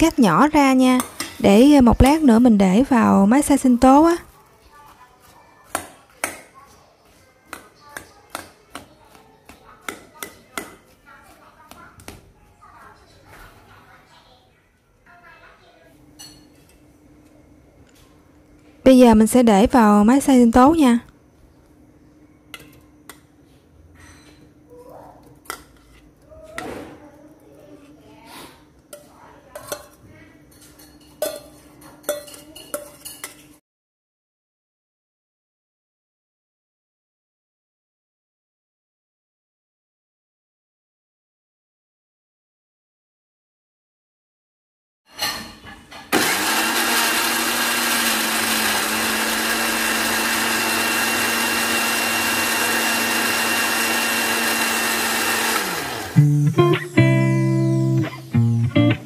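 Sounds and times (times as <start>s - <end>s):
metal spoon clinking on steel bowl: 29.5s - 33.5s
blender motor running: 46.1s - 56.3s.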